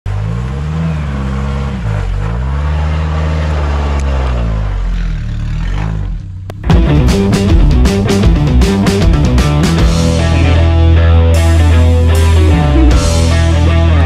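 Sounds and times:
four-wheel drive engine revving: 0:00.1 - 0:06.6.

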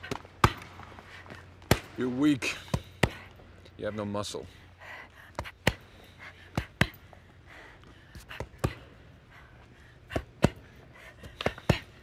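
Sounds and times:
fists punching bags: 0:00.0 - 0:00.8, 0:01.6 - 0:03.4, 0:08.2 - 0:08.9, 0:10.1 - 0:12.0.

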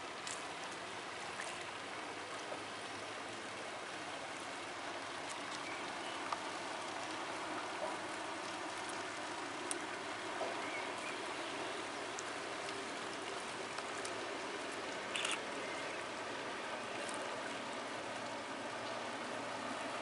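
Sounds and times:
faint ticks: 0:05.3 - 0:11.2, 0:12.0 - 0:15.4.

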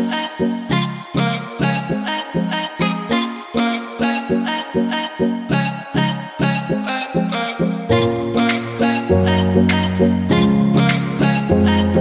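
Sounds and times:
deep sustained bass notes: 0:07.9 - 0:12.0.

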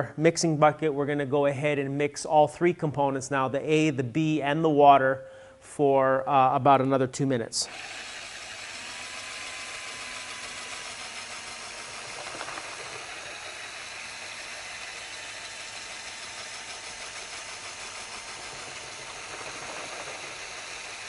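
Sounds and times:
drill turning paddle mixer: 0:07.6 - 0:21.0.

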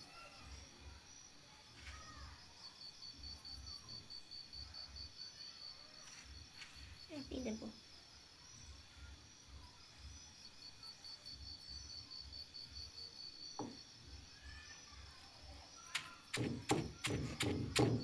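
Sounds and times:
pulsing insect chirr: 0:00.0 - 0:18.0
pestle pounding in stone mortar: 0:16.0 - 0:18.0.

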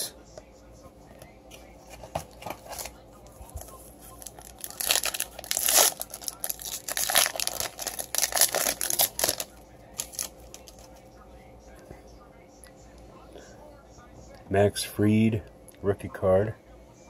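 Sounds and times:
foil pack tearing and crinkling: 0:04.2 - 0:10.9.

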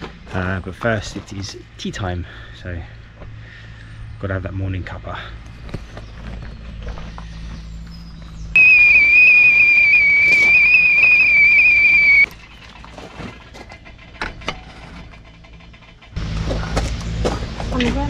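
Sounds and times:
kettle whistling: 0:08.6 - 0:12.3.

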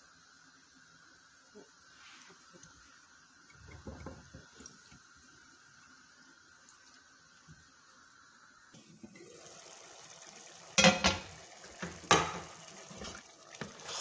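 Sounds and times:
spoon knocking against a pot: 0:10.8 - 0:11.2.

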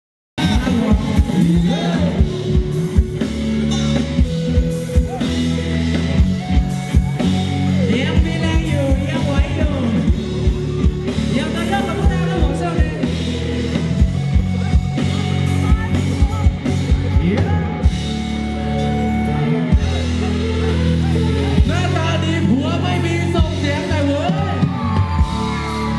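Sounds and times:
person singing: 0:00.4 - 0:03.2
dance band playing: 0:00.4 - 0:25.9.

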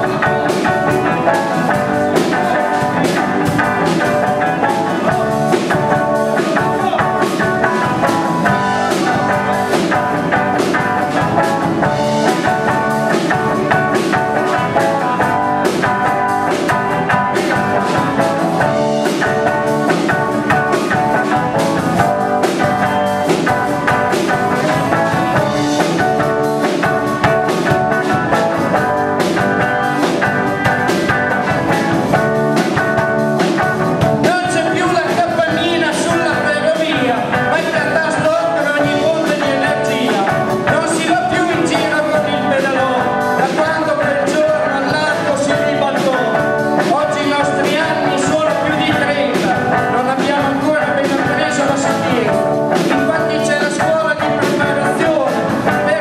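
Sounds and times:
live band playing: 0:00.0 - 0:56.0
man singing into a microphone: 0:34.2 - 0:56.0.

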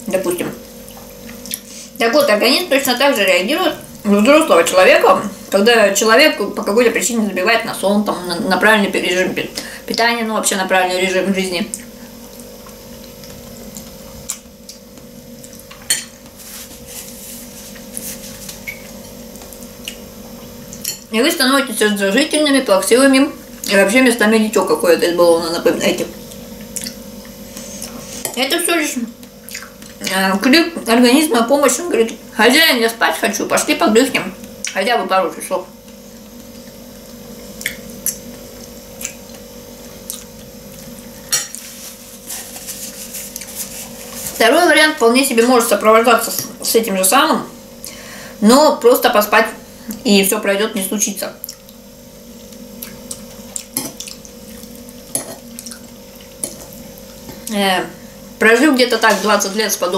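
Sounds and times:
steady low hum: 0:00.0 - 0:59.9
fork scraping plate: 0:41.3 - 0:44.4, 0:59.0 - 0:59.6.

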